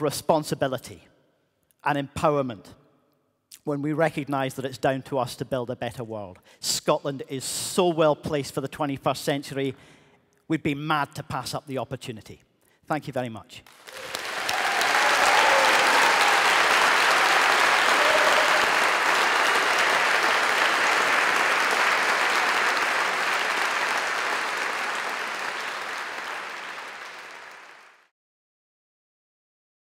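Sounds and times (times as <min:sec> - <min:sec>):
audience applauding: 0:13.7 - 0:28.1.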